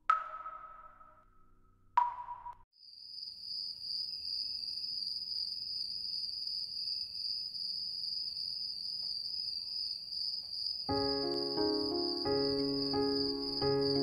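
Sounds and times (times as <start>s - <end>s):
crickets chirping: 2.8s - 14.0s.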